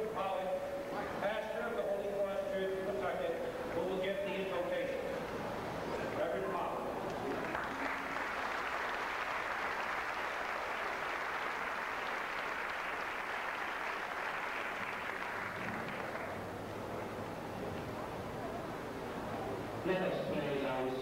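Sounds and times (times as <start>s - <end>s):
audience applauding: 7.0s - 16.7s.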